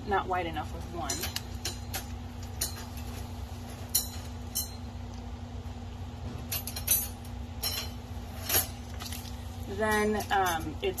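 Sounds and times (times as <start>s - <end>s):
metal clinks and wire rattles: 0.9s - 5.0s, 6.3s - 11.0s.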